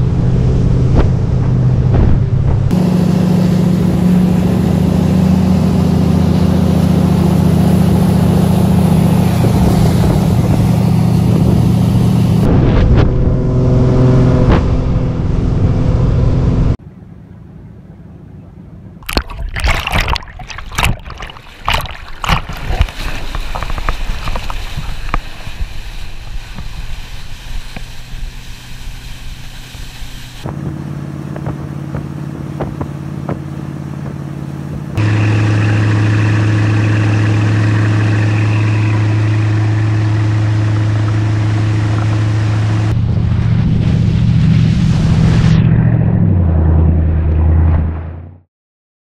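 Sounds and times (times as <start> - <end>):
water rushing and splashing: 0.0 - 12.5, 19.0 - 45.8
boat engine droning: 0.0 - 48.3.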